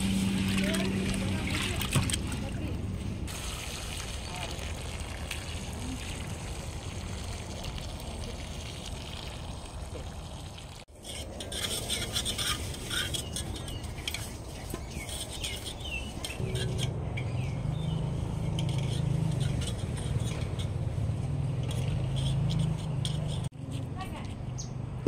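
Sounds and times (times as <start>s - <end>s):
metal pot clinking and scraping: 10.9s - 23.5s.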